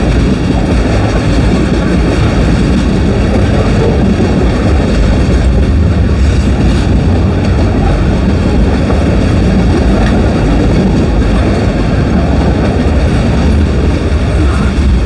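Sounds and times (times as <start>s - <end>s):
steel wheels rumbling on rail: 0.0s - 15.0s.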